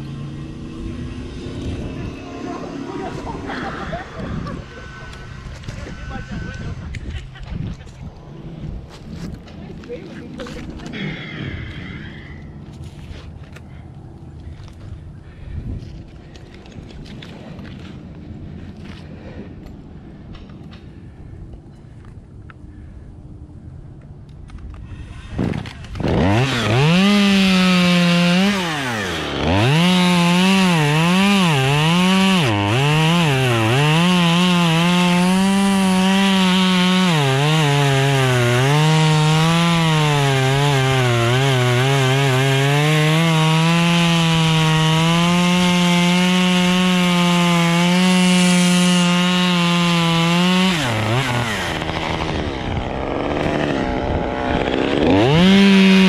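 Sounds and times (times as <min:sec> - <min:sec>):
chainsaw cutting wood: 0:00.0 - 0:07.8, 0:24.7 - 0:56.0.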